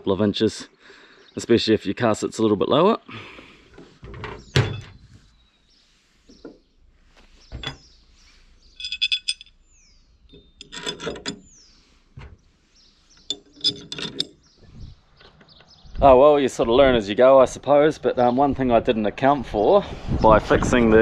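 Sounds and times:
high falling bird chirps: 4.3 - 16.3
metal clinks and knocks: 4.6 - 5.0, 7.6 - 7.9, 8.7 - 11.6, 13.2 - 14.6
metal rattles: 7.6 - 7.9, 8.7 - 12.4, 13.1 - 14.6.

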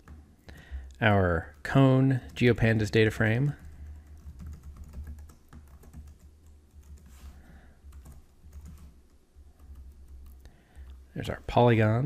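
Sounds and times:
keyboard typing: 1.4 - 11.0.

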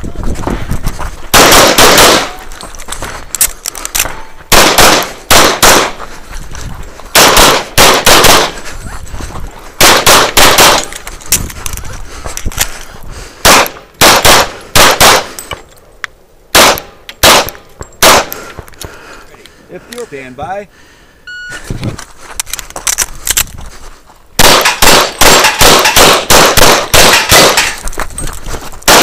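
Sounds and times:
handgun shots: 1.3 - 2.4, 4.0 - 6.0, 7.2 - 8.5, 9.8 - 11.0, 13.4 - 15.3, 16.6 - 18.3, 24.4 - 27.8.

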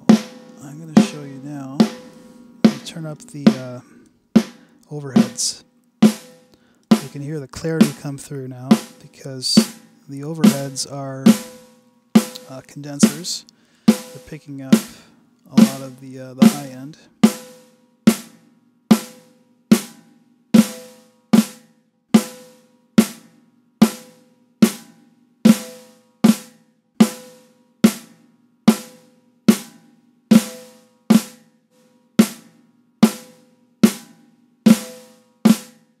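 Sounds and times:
snare drum hits: 0.1 - 3.8.

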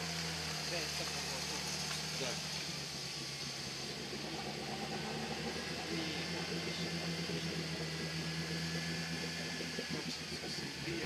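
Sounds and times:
vehicle engine hum: 0.0 - 11.0.

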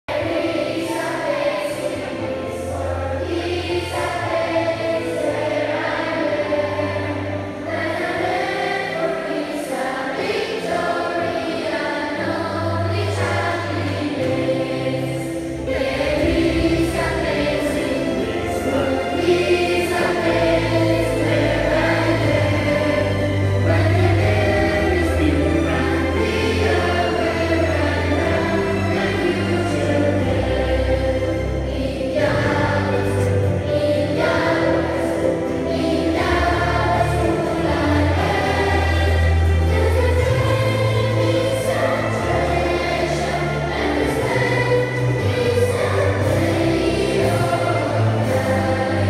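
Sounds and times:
choir singing a hymn: 0.0 - 49.0
low bass accompaniment notes: 12.4 - 49.0.

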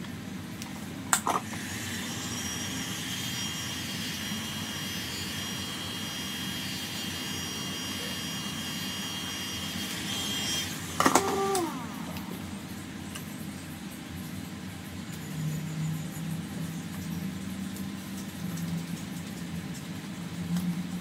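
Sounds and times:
heat gun blowing with high whine: 1.2 - 12.8.

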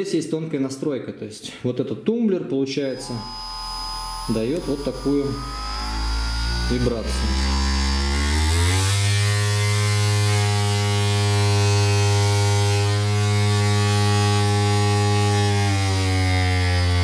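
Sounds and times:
vibrating suction cup buzzing: 2.9 - 17.0.

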